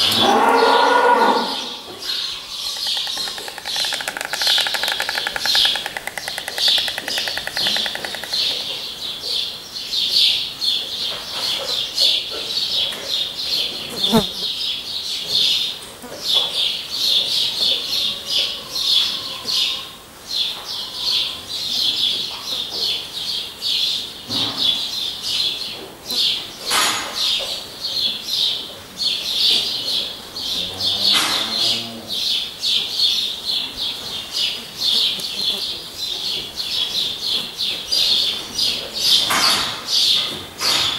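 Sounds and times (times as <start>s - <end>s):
small birds chirping: 1.5s - 40.3s
storks bill-clattering: 2.7s - 8.9s.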